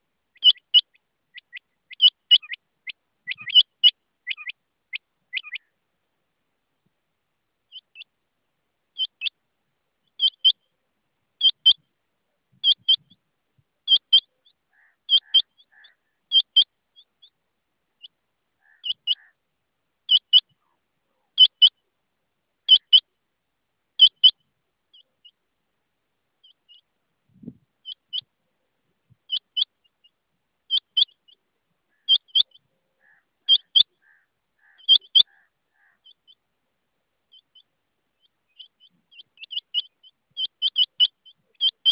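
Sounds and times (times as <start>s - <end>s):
quail calling: 0.0s - 5.8s, 7.7s - 8.1s, 9.0s - 9.4s, 10.0s - 10.8s, 11.4s - 11.9s, 12.6s - 13.2s, 13.8s - 17.4s, 18.0s - 19.4s, 20.1s - 21.9s, 22.6s - 23.1s, 24.0s - 25.4s, 26.4s - 36.5s, 37.3s - 41.9s.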